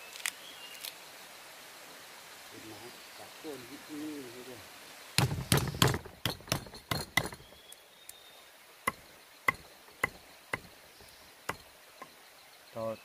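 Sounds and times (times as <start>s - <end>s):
sharp knocks with ringing ping: 5.2s - 7.6s, 8.9s - 10.7s.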